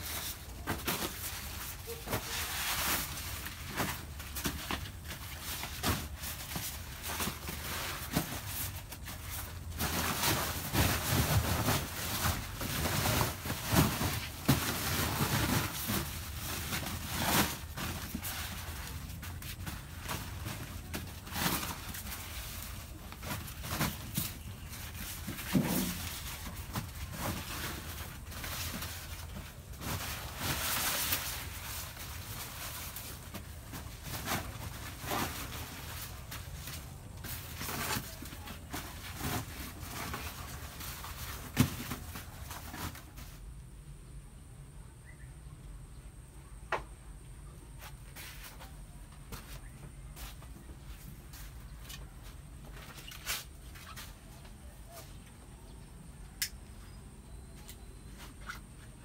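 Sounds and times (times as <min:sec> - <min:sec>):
corn ears clacking together: 0:00.0 - 0:43.3
corn husks rustling: 0:00.0 - 0:43.5.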